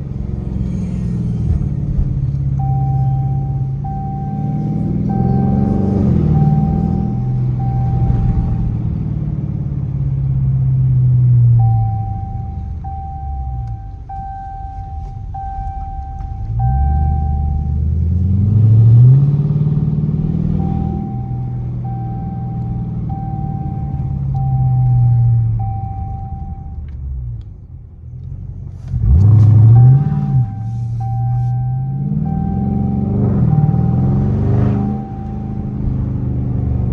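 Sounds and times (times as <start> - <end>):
car engine revving from inside: 0.0 - 26.8, 28.6 - 36.9
repeated beep-like tone: 2.6 - 8.8, 11.6 - 17.8, 20.4 - 26.9, 29.6 - 36.4.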